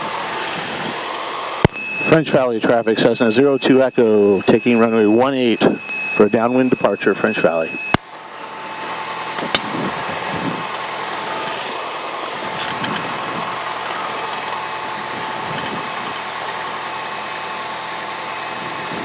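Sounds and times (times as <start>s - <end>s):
airplane engine and propeller: 0.0s - 19.0s.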